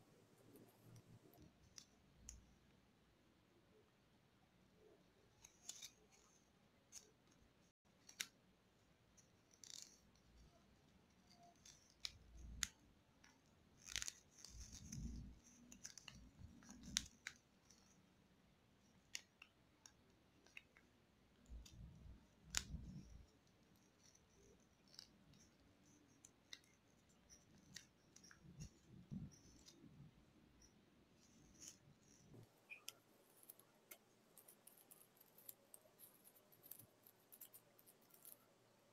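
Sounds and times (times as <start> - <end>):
paper crinkling while folded: 13.7 - 18.0.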